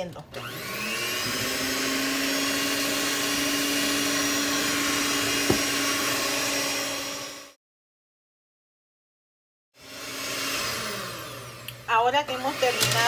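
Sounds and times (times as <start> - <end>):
electric hand mixer whirring: 0.2 - 7.6, 9.8 - 13.0
knock: 5.4 - 5.7.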